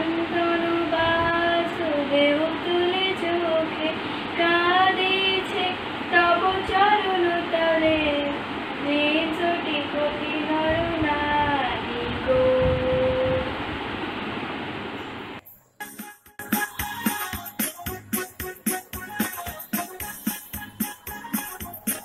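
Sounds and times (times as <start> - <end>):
girl singing solo: 0.0 - 13.4.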